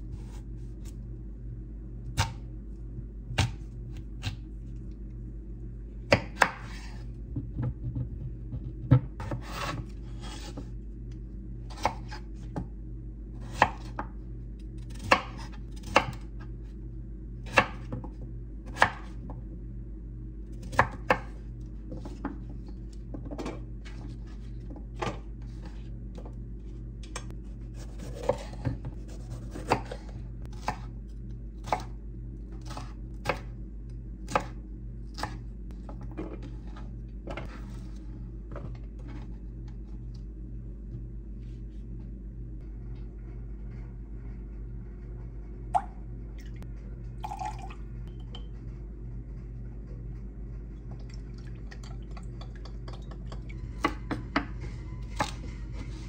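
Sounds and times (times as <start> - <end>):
knife chopping on wooden board: 6.1 - 10.6.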